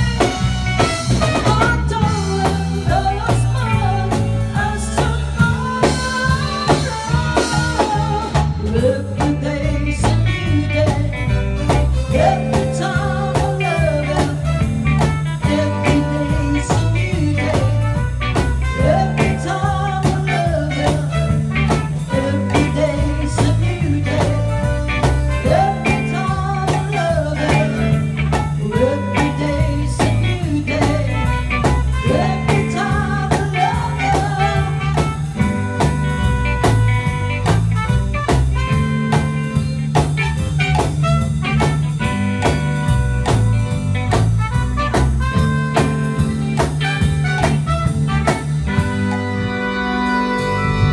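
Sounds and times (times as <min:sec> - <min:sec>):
trumpet: 0:00.0 - 0:08.4, 0:10.0 - 0:50.9
drum kit: 0:00.0 - 0:50.9
electric guitars: 0:00.0 - 0:50.9
keyboard: 0:00.0 - 0:50.9
woman singing through a pa: 0:01.2 - 0:11.4, 0:12.1 - 0:14.7, 0:15.4 - 0:18.1, 0:18.7 - 0:35.4.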